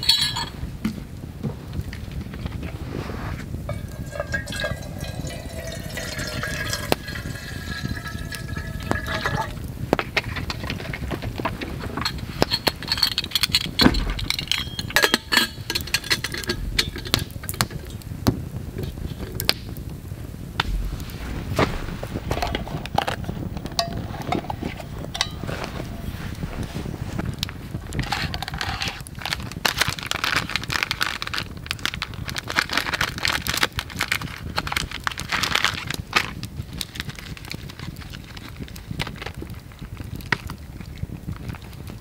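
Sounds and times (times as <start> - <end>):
metal cup clinks: 0.0 - 0.5, 3.7 - 9.6, 12.0 - 17.3, 23.6 - 26.2
water poured into metal cup: 3.7 - 9.6, 21.8 - 26.8.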